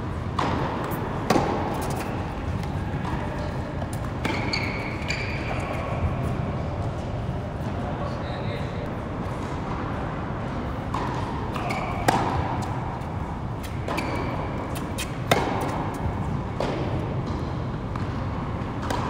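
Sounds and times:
rackets hitting tennis ball: 0.2 - 7.1, 9.4 - 19.0
tennis shoes squeaking on court: 0.4 - 6.5, 10.9 - 18.2.

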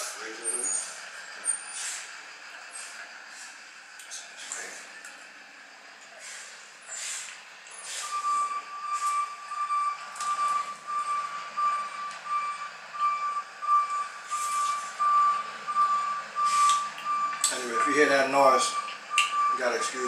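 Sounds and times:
high-pitched electronic beeping: 7.8 - 20.0.

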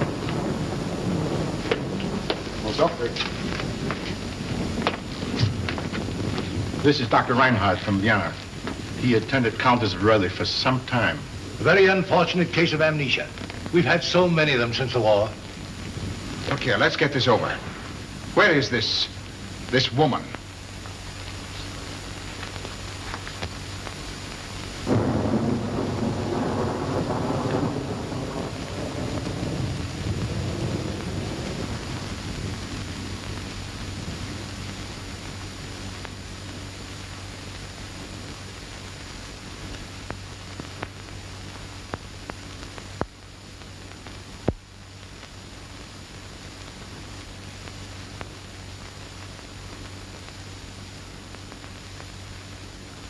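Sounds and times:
film soundtrack hiss: 0.0 - 53.0
loud rumble: 24.8 - 34.5.

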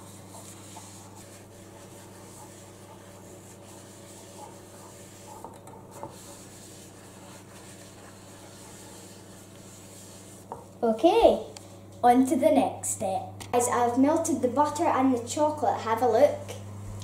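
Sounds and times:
paper towel rubbing metal tin: 0.0 - 10.6
steady low hum: 0.0 - 17.0.

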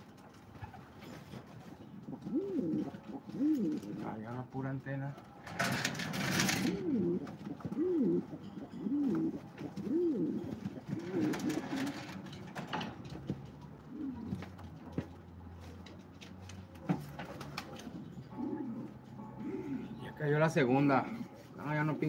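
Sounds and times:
pigeons cooing: 0.5 - 4.2, 5.2 - 15.3, 17.0 - 20.3.

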